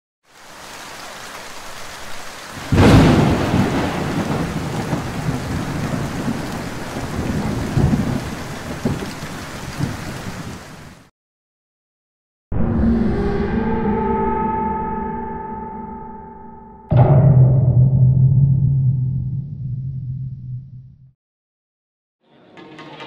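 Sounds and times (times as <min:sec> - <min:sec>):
steady rain: 0:00.3 - 0:11.1
low rumble of thunder: 0:02.6 - 0:10.6
loud thunderclap: 0:02.6 - 0:10.7.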